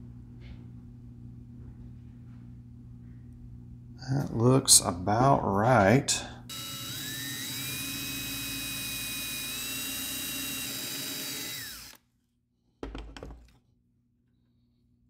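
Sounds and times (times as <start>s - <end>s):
power drill boring into wood: 6.5s - 12.0s.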